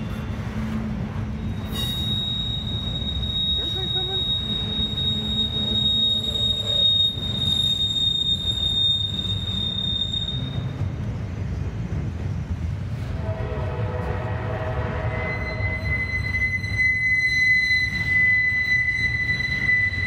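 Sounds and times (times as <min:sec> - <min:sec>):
high wheel squeal: 0:00.0 - 0:10.9, 0:15.1 - 0:20.0
train wheels rumbling on rail: 0:00.0 - 0:20.0.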